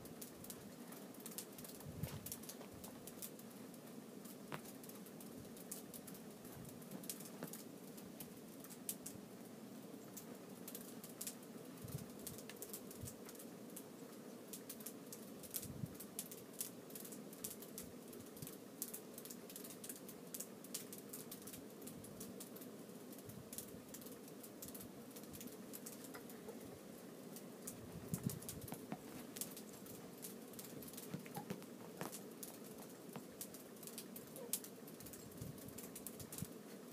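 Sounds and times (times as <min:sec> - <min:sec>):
claws clicking: 0:27.6 - 0:35.2.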